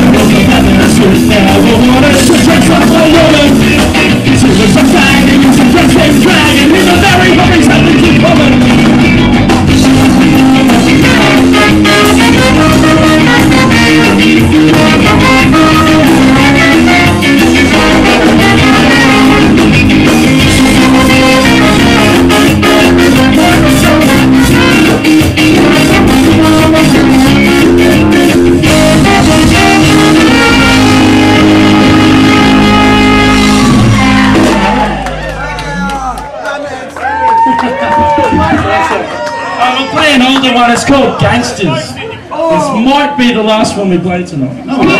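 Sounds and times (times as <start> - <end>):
trombone: 0.0 - 35.4
drums: 0.0 - 36.3, 36.9 - 39.1, 42.5 - 44.9
electric guitar: 0.0 - 36.3
live band playing: 0.0 - 44.9
trumpet: 9.6 - 36.2.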